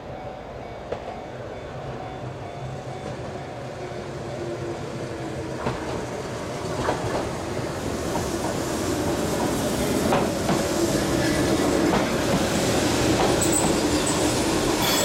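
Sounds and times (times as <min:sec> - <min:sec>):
electric train arriving: 0:00.0 - 0:15.0
train wheel clicks on track: 0:05.6 - 0:07.4, 0:08.1 - 0:12.5, 0:13.1 - 0:15.0.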